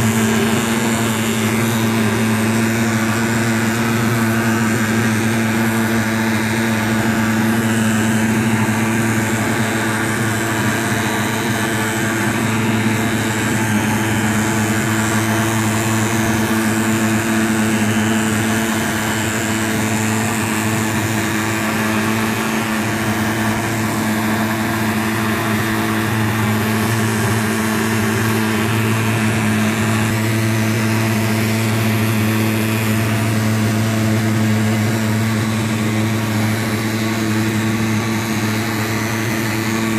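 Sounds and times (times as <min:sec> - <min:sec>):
pulse-jet engine droning: 0:00.0 - 0:39.9.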